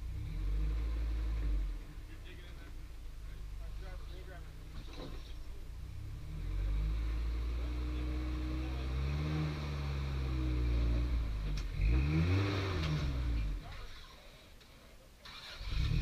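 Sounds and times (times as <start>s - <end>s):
engine revving under load: 0.0s - 2.8s, 5.7s - 14.3s, 15.2s - 16.0s.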